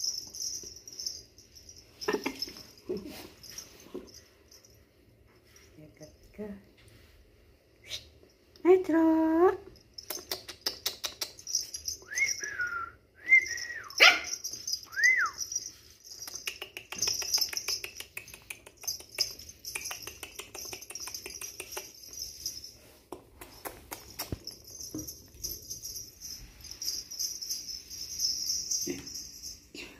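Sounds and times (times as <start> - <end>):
puppy yipping: 13.9 - 14.5
clicking and tapping on floor: 16.2 - 22.2, 23.1 - 25.4.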